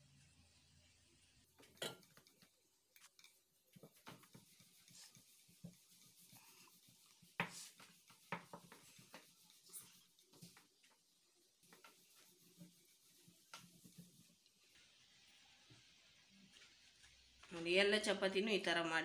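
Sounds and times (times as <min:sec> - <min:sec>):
rolling pin rolling dough on stone: 0:03.2 - 0:14.5.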